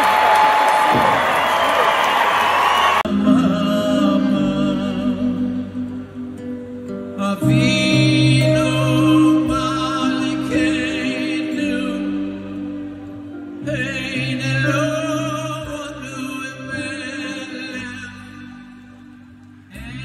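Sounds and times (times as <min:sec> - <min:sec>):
man singing through pa: 0:03.1 - 0:06.5, 0:07.1 - 0:12.9, 0:13.6 - 0:19.0, 0:19.7 - 0:20.0.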